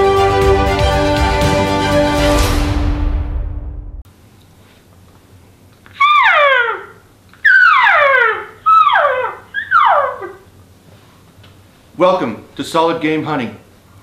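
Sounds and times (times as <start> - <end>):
elk call mews: 5.9 - 10.5.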